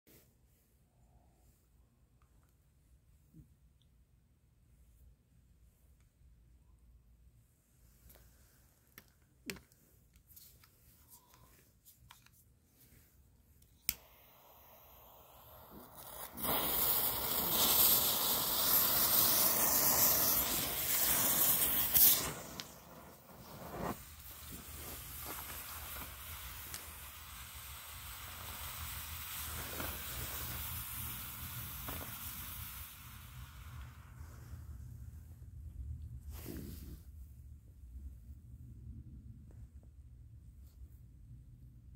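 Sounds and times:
smoke ball hissing: 13.7 - 35.1, 36.2 - 37.1.

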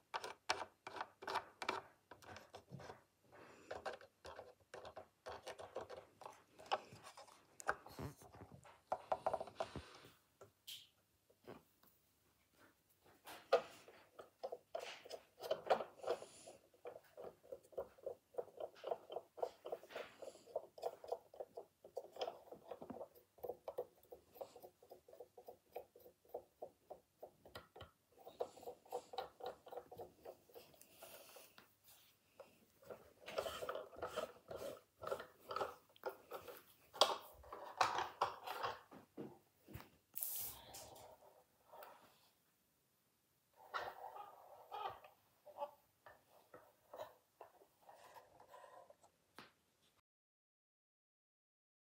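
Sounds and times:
cotton swab scrubbing plastic wheel: 0.0 - 10.0, 13.3 - 38.9, 43.6 - 49.2.

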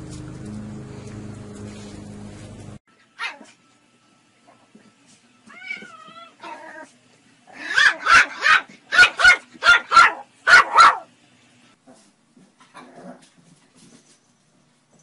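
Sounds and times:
cat meowing: 5.5 - 6.6
puppy yapping: 7.5 - 11.1.

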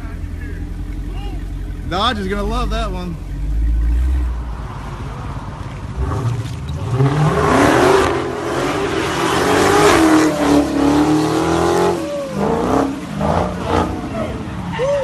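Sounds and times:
car engine revving hard: 5.9 - 14.2.

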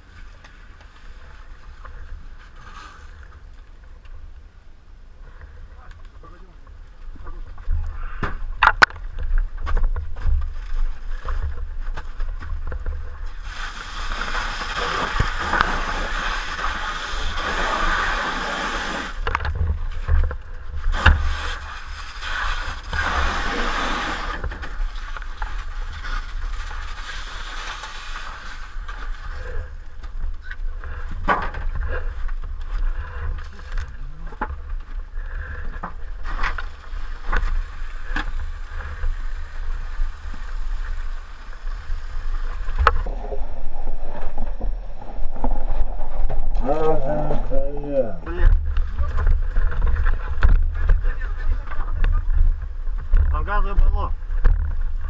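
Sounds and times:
hose nozzle spraying water: 13.3 - 19.2, 20.9 - 24.5
steady low rumble: 28.9 - 55.0.

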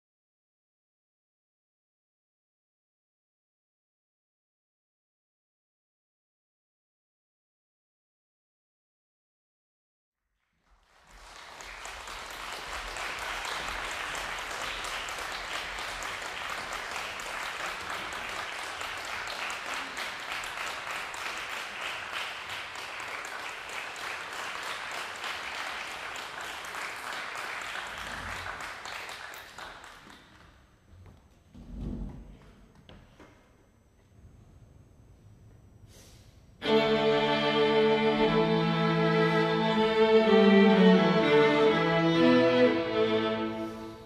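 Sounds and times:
audience applauding: 10.6 - 30.5.

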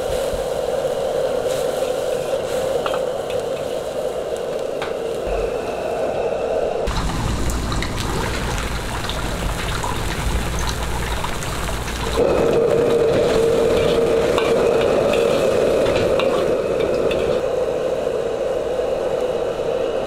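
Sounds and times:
food sizzling in a wok: 0.0 - 5.3, 6.9 - 17.4.

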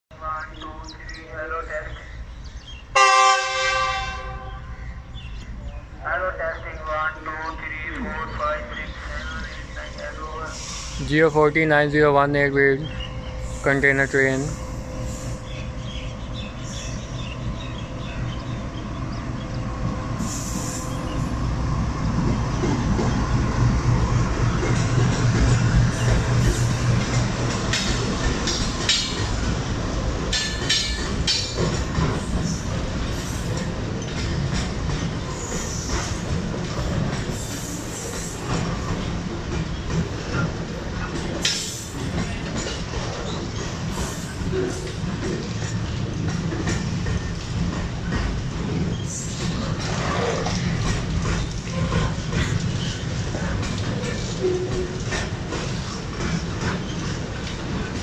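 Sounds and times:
train wheels rumbling on rails: 0.2 - 58.0
diesel locomotive engine running: 5.3 - 49.8.

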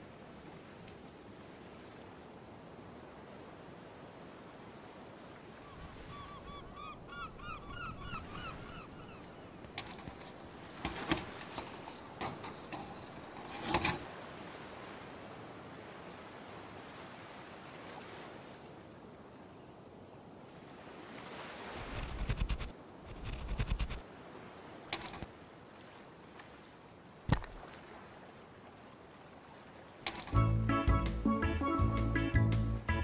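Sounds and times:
bird calls: 5.6 - 10.3
sharp knocks and thumps: 9.8 - 14.0.

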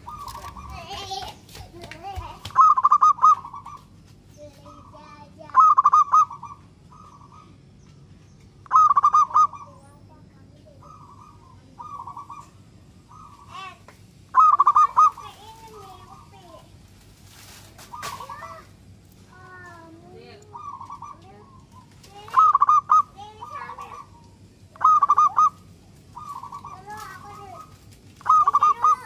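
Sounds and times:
dove cooing: 0.0 - 1.3, 2.6 - 3.9, 4.6 - 7.7, 8.6 - 10.1, 10.7 - 16.6, 17.8 - 18.7, 19.6 - 29.0.

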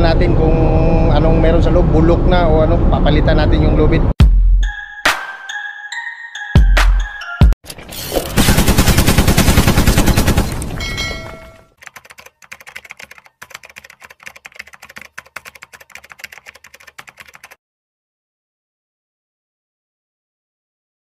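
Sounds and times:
loud rapid rattling: 8.4 - 10.6
typewriter key clicks: 11.8 - 17.6.

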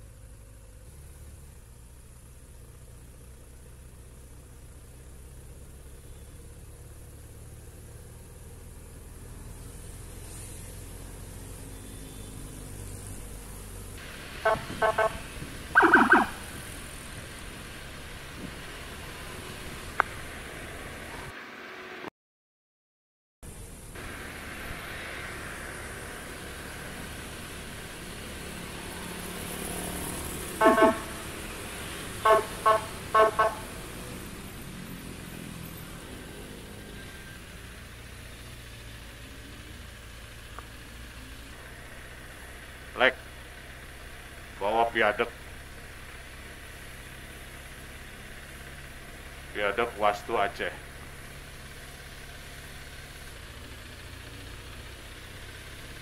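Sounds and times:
engine and road noise: 0.0 - 22.1, 23.4 - 56.0
vehicle horn toots: 11.7 - 12.4, 14.4 - 16.4, 30.6 - 31.4, 32.2 - 33.8.

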